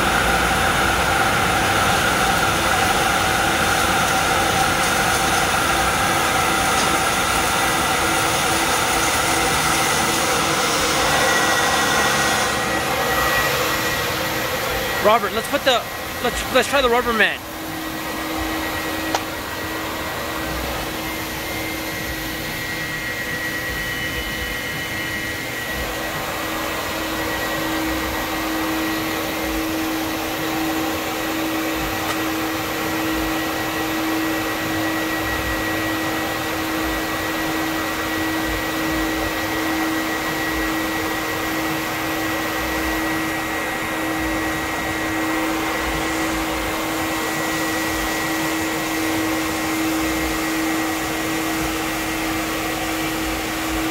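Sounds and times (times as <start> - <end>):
mat washing machine running: 0.0 - 53.9.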